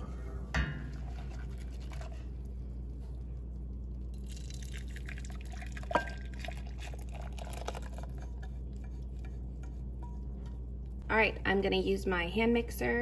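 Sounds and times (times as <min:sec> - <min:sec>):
liquid pouring and splashing: 0:04.1 - 0:08.4
whisk scraping a pan: 0:07.6 - 0:10.5.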